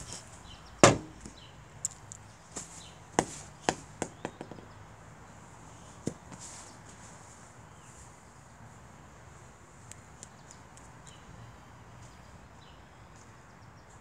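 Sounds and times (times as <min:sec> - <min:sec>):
sharp knocks: 0:00.8 - 0:01.4, 0:03.2 - 0:04.7.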